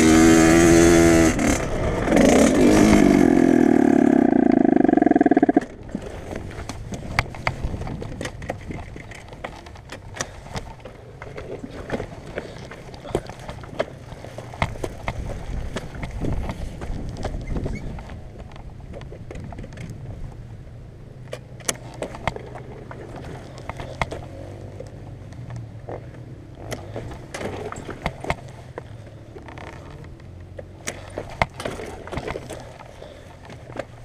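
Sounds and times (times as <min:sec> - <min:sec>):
dirt bike engine at low revs: 0:00.0 - 0:34.0.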